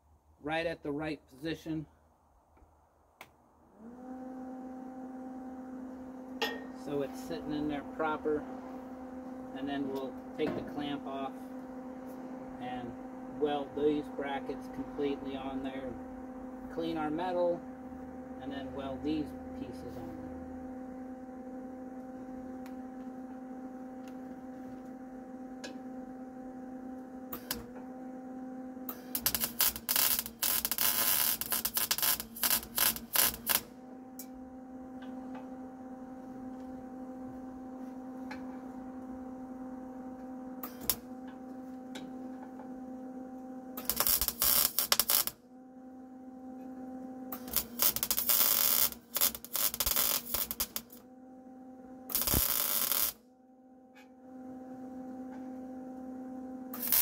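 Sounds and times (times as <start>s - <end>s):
steady electrical hum: 0.0s - 3.7s, 4.6s - 57.0s
welding arc crackling: 27.4s - 27.7s, 28.9s - 33.7s, 40.6s - 41.1s, 43.8s - 45.4s, 47.3s - 51.0s, 52.1s - 53.2s, 56.8s - 57.0s.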